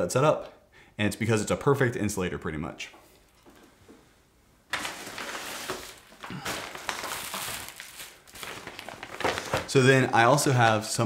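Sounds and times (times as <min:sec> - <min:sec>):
plastic bag crinkling: 0:04.7 - 0:10.2.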